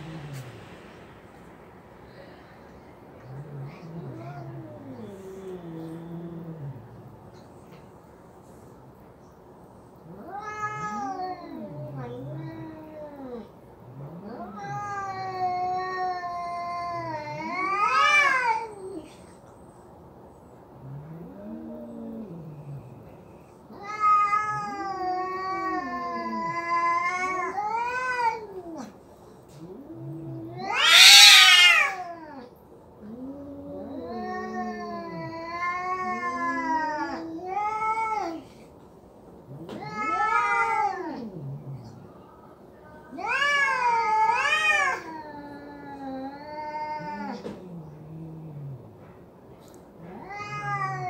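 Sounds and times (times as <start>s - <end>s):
cat yowling: 10.1s - 13.5s, 14.2s - 19.1s, 23.7s - 29.0s, 29.7s - 32.5s, 33.1s - 38.5s, 39.5s - 41.8s, 43.1s - 47.8s, 50.0s - 51.0s.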